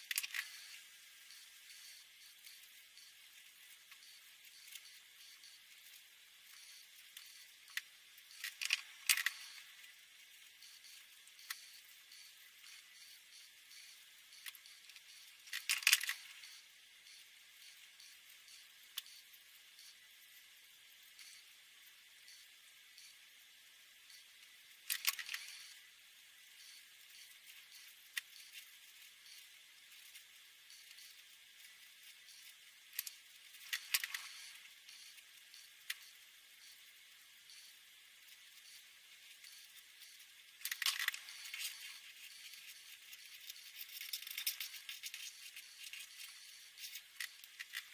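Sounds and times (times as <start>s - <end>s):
marker scratching on paper: 41.0s - 47.9s.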